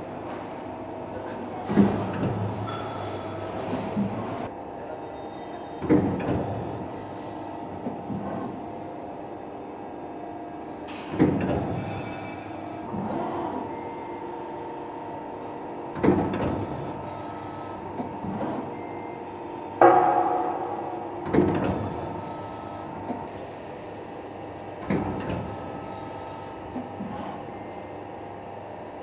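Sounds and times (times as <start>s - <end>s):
machinery humming: 0.0s - 29.0s
loud metallic clanks: 19.8s - 21.8s.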